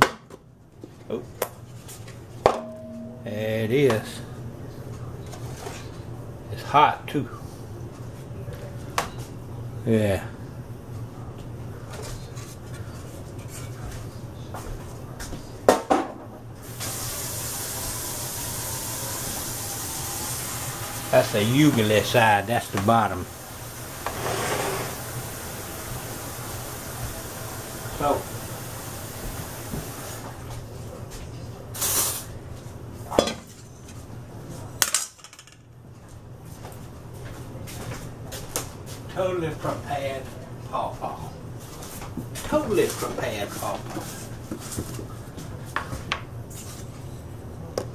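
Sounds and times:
metal bowl set down on countertop: 2.5 - 3.2
ceramic spoon clinking in bowl: 2.5 - 3.3
metal pan clanking down: 2.5 - 3.4
kitchen tap running: 16.6 - 30.5.

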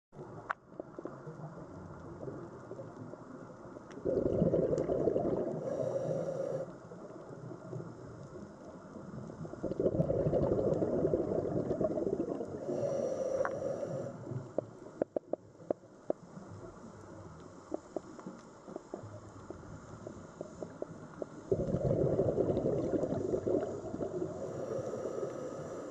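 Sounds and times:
diver's exhaled bubbles: 4.0 - 5.9, 9.6 - 12.8, 21.4 - 25.9
underwater hiss: 4.0 - 7.2, 9.0 - 15.0, 16.2 - 25.9.

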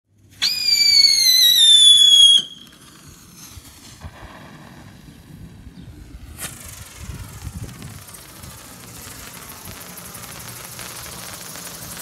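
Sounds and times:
faint hiss: 0.2 - 12.0
firework whistling: 0.2 - 12.0.

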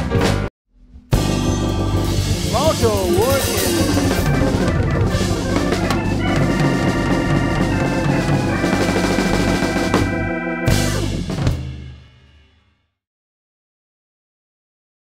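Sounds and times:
organ chords: 1.1 - 11.5
live blues band playing: 1.2 - 11.4.

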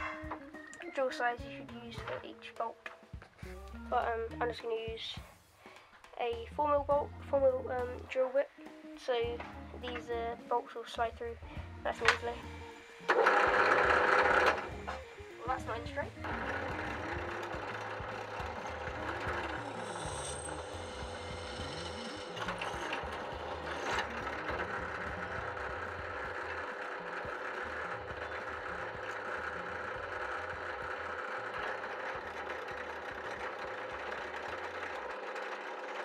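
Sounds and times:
drill press motor hum: 11.3 - 36.0.

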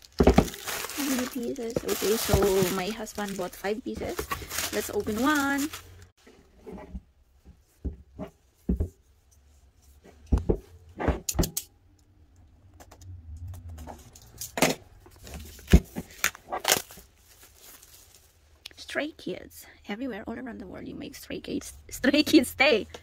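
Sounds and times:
shrink wrap crinkling: 0.0 - 6.1, 15.1 - 18.6.

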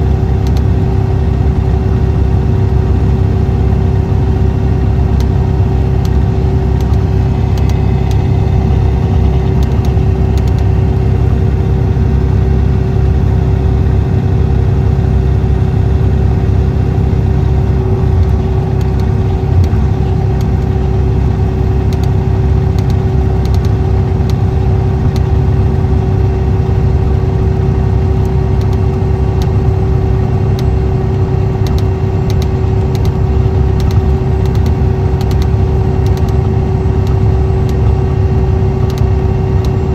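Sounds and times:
diesel coach engine running: 0.0 - 39.9
light clicks: 22.8 - 24.4, 38.8 - 39.8.

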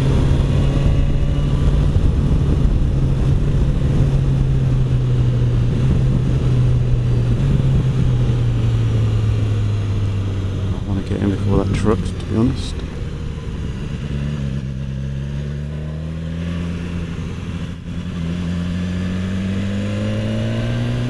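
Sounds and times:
wind noise: 0.0 - 15.0
motorcycle engine cruising: 0.0 - 21.0.

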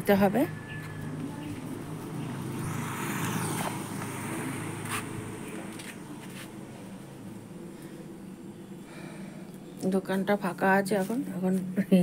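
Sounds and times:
motor scooter passing: 0.0 - 8.2.

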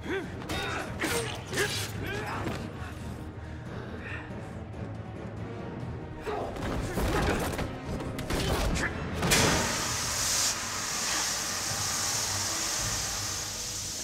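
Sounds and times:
tense background music: 0.0 - 14.0
loud steady hiss: 9.4 - 14.0.

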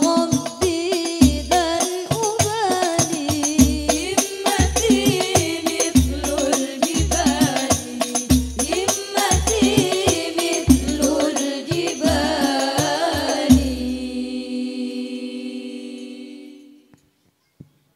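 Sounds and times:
frame drums: 0.0 - 14.3
women singing together: 0.0 - 17.0.

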